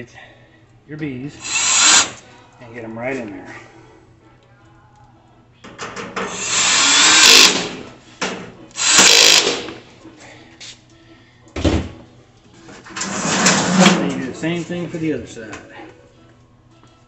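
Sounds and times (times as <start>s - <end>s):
power drill driving bolts: 1.4s - 2.2s, 6.2s - 7.9s, 8.8s - 9.8s.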